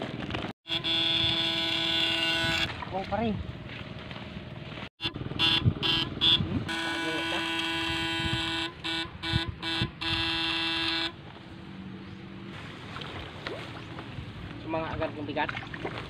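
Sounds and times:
electric fishing rig buzzing: 0.7 - 2.8, 5.0 - 11.2.

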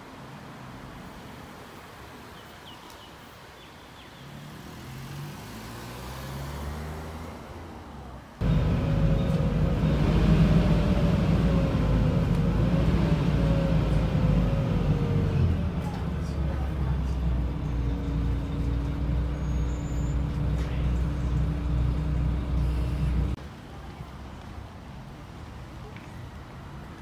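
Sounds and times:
faint street traffic: 0.0 - 27.0
vehicle passing hum: 4.2 - 23.4
vehicle interior rumble: 8.0 - 23.4
faint whine: 17.9 - 23.4.

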